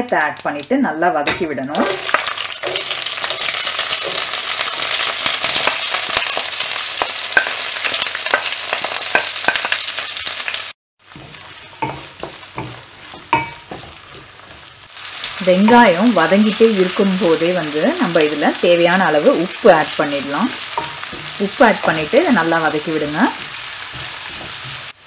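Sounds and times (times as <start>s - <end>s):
onions sizzling in hot oil: 1.8s - 25.0s
wooden spatula stirring: 11.0s - 16.4s, 20.0s - 25.0s.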